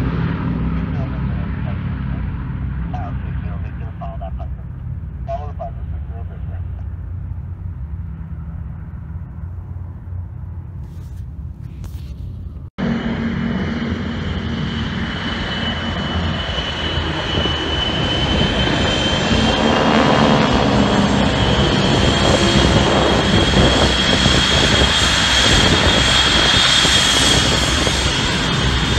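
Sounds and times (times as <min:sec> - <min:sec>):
distant propeller bomber drone: 0:00.0 - 0:28.9
propeller planes flying over: 0:00.0 - 0:28.9.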